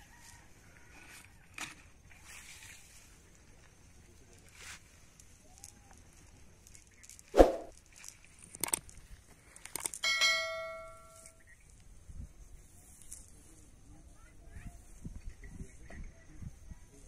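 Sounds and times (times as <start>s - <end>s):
bell ding: 10.0s - 11.3s.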